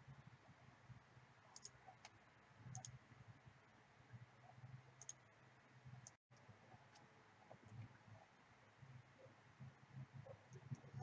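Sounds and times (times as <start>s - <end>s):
computer mouse clicks: 1.5s - 3.0s, 5.0s - 5.2s.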